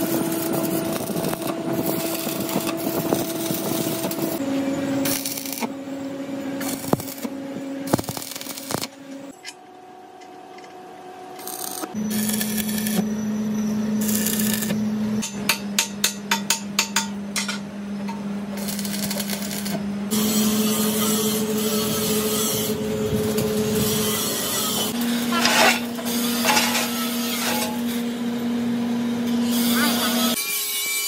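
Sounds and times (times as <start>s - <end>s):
welding arc crackling and hissing: 0.0s - 4.4s, 5.0s - 5.7s, 6.6s - 9.0s, 11.4s - 13.0s, 14.0s - 14.8s, 18.6s - 25.9s
welding machine hum: 0.0s - 9.4s, 11.3s - 15.3s, 18.4s - 30.4s.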